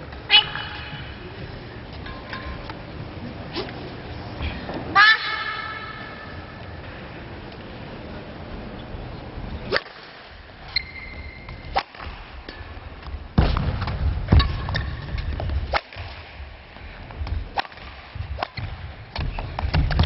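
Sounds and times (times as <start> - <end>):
background noise: 0.0 - 20.0.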